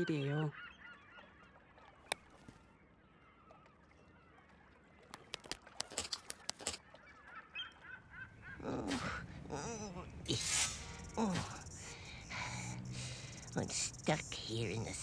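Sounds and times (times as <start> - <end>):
sharp clacks of beaks knocking: 5.1 - 6.8.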